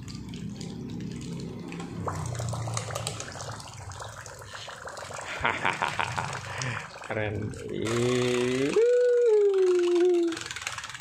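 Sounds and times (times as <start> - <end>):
toys splashing in water: 0.0 - 4.6, 5.2 - 11.0
toy being wound up clicking: 7.9 - 11.0.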